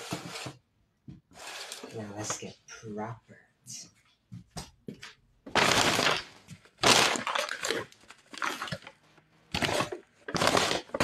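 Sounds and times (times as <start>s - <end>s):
paper bag crackling and crunching: 5.6s - 11.0s.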